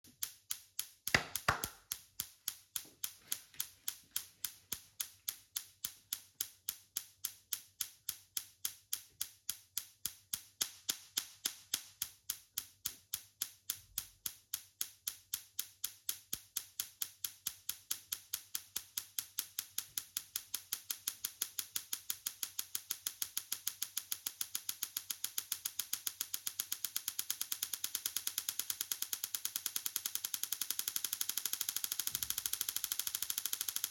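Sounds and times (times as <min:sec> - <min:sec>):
tesla coil snapping clicks: 0:00.2 - 0:03.1, 0:23.6 - 0:33.9.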